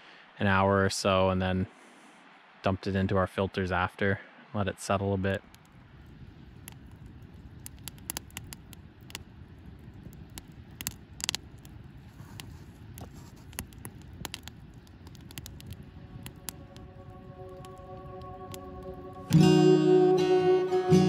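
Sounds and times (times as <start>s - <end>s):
low steady rumble: 5.4s - 21.0s
sharp clicks and scrapes: 6.6s - 9.2s, 10.0s - 16.6s
acoustic guitar music: 17.7s - 21.0s.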